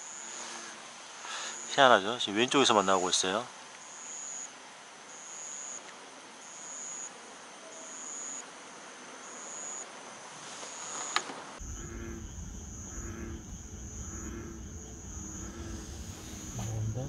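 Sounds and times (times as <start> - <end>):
insect trilling: 3.8 - 4.5, 5.1 - 7.1, 7.7 - 8.4, 9.2 - 9.9, 10.7 - 17.0
low rumble: 11.6 - 17.0.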